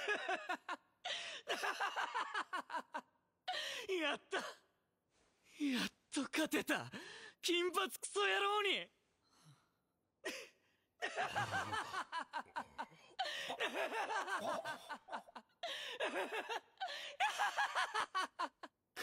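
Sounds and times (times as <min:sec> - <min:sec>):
young man laughing loudly: 0:11.1 - 0:12.8, 0:13.5 - 0:16.6.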